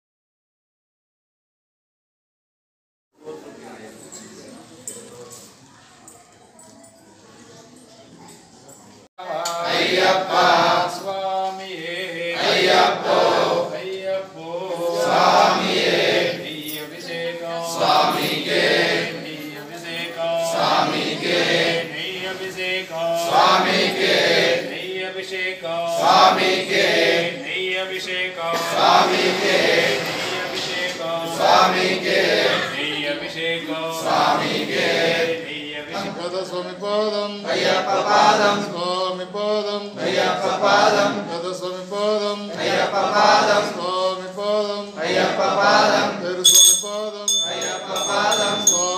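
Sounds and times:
group chanting: 0:09.2 - 0:46.5, 0:47.1 - 0:48.9.

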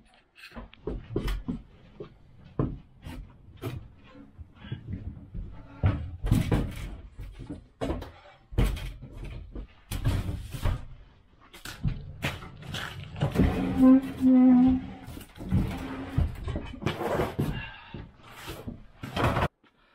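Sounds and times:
hand truck scraping and rolling: 0:12.0 - 0:17.6.

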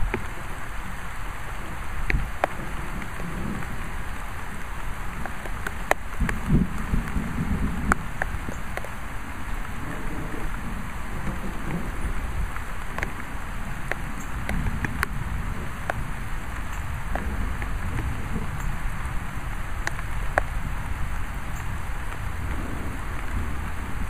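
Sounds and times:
distant thunder rumble: 0:00.0 - 0:24.0
raindrops tapping near microphone: 0:00.0 - 0:24.0
steady rain falling: 0:00.0 - 0:24.0.

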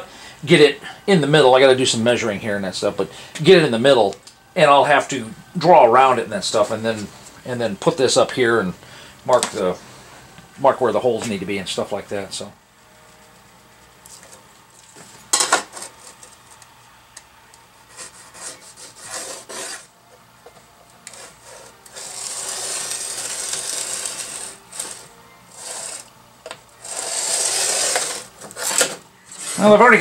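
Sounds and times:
tool scraping across metal: 0:17.9 - 0:19.9, 0:21.0 - 0:26.1, 0:26.8 - 0:30.0.

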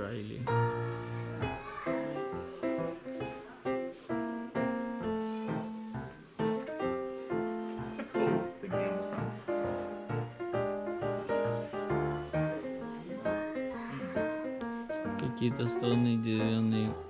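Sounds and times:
background music melody: 0:00.0 - 0:17.0.

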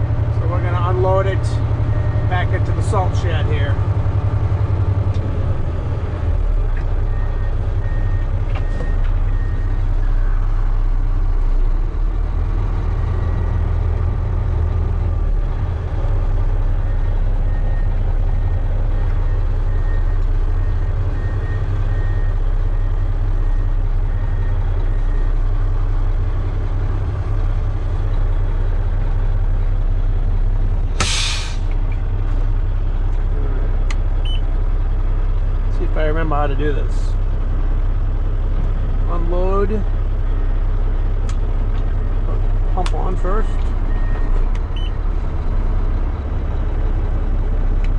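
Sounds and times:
diesel truck engine running: 0:00.0 - 0:47.9
air brake hiss: 0:31.0 - 0:31.7.

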